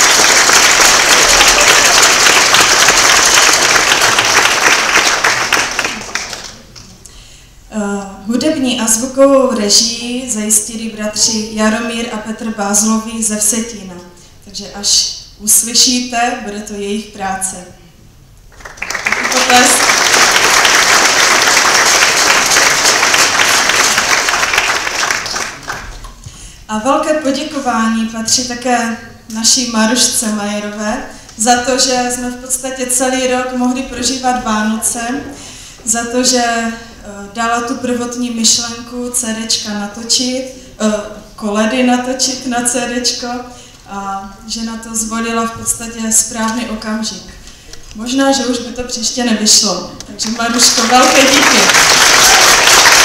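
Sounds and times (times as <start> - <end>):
audience applauding: 0.0 - 6.9, 18.5 - 26.2, 50.2 - 53.0
crowd clapping: 0.0 - 7.0, 18.5 - 26.2, 50.2 - 53.0.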